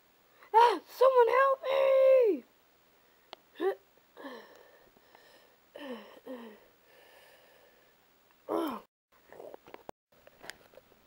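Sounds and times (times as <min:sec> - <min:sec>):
child groaning and gasping: 0:03.6 - 0:04.6, 0:05.8 - 0:06.6, 0:08.5 - 0:08.9.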